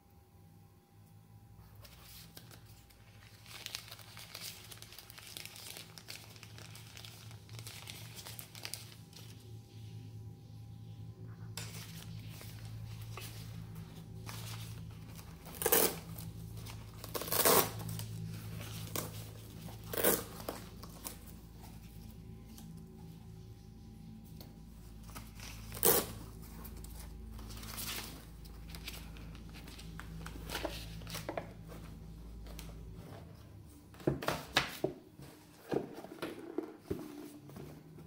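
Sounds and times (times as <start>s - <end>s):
plastic sheets crinkling: 1.8s - 9.6s, 11.6s - 23.0s, 24.9s - 33.4s.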